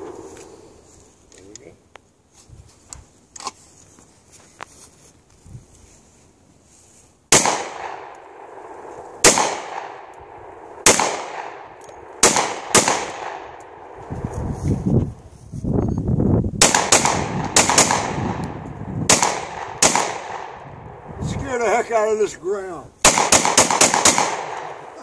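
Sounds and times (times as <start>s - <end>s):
pistol shots: 7.3s - 14.0s, 16.6s - 18.5s, 19.1s - 20.6s, 23.0s - 25.0s.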